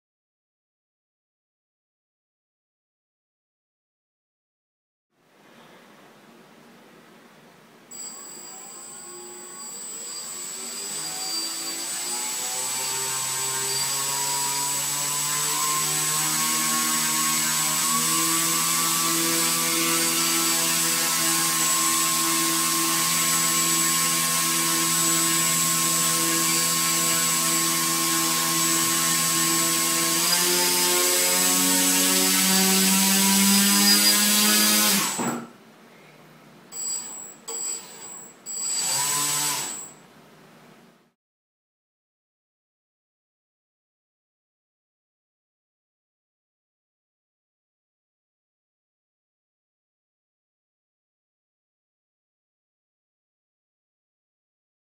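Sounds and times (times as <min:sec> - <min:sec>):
steady high-pitched whine: 0:07.9 - 0:11.6.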